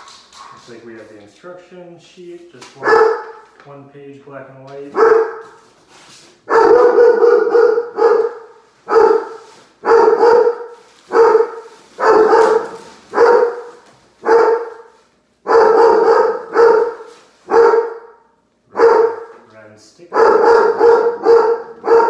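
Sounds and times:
dog barking: 0:00.0 - 0:00.7, 0:02.8 - 0:03.4, 0:04.9 - 0:05.6, 0:06.5 - 0:19.4, 0:20.1 - 0:22.0.

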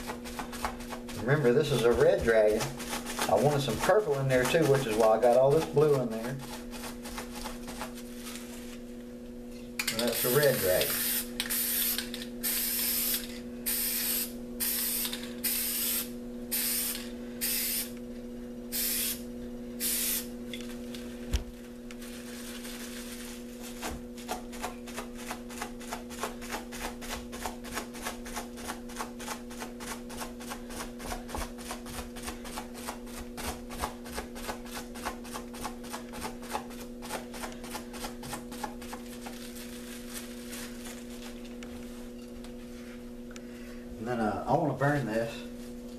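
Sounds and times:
steady low hum: 0:00.0 - 0:45.9
spray paint can hissing: 0:10.1 - 0:17.9, 0:18.7 - 0:19.2, 0:19.8 - 0:20.3.

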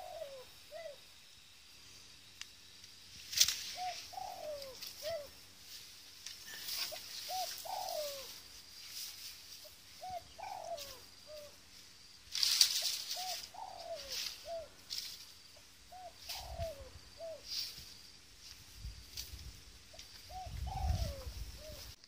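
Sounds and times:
dove cooing: 0:00.0 - 0:01.0, 0:03.7 - 0:05.4, 0:06.5 - 0:08.5, 0:09.6 - 0:11.6, 0:12.8 - 0:14.8, 0:15.6 - 0:17.6, 0:19.9 - 0:22.0
brief rustle: 0:03.2 - 0:03.8, 0:12.3 - 0:13.4.

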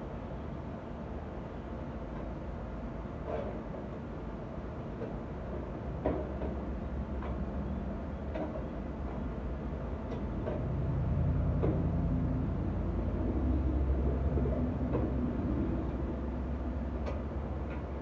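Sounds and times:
low motor rumble: 0:06.9 - 0:18.0.

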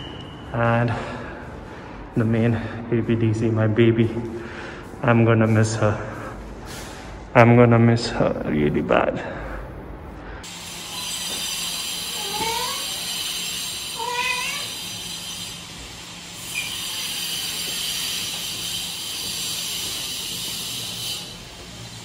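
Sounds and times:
cat meowing: 0:12.2 - 0:12.9, 0:14.0 - 0:14.8.

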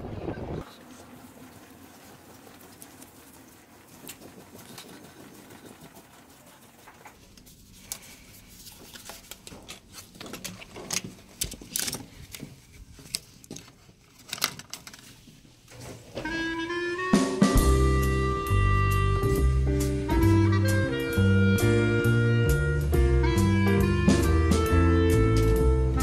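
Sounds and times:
background music with bass line: 0:17.1 - 0:26.0.

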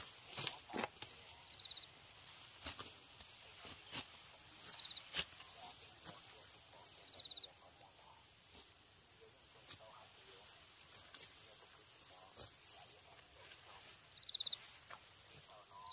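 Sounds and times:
rice stalks being cut: 0:00.0 - 0:07.0, 0:09.6 - 0:15.5
high insect-like ticking: 0:00.3 - 0:01.9, 0:04.6 - 0:07.6
high chirping trill: 0:04.7 - 0:05.0.

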